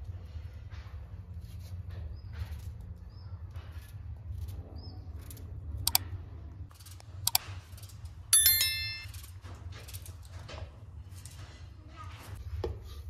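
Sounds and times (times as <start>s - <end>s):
notification bell chime: 8.4s - 9.2s.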